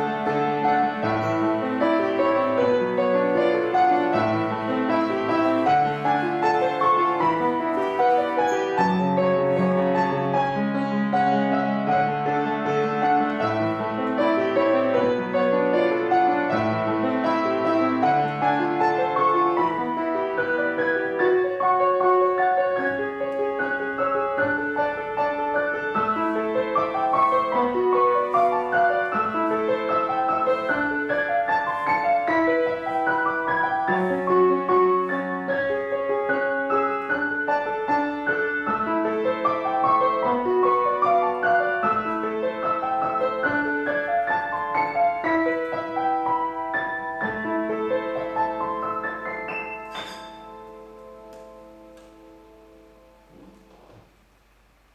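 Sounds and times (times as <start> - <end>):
piano music: 0.0 - 54.9.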